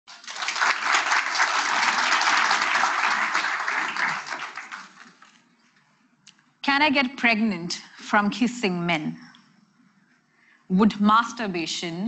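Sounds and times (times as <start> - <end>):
audience clapping: 0.1 - 5.4.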